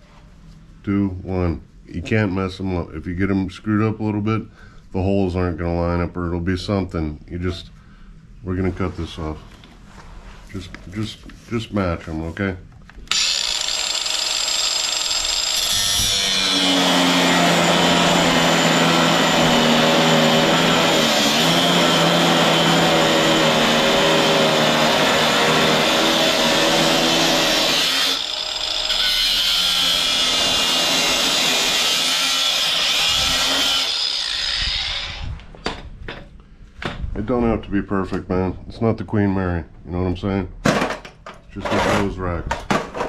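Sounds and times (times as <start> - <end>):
angle grinder cutting steel: 13.1 - 35.4.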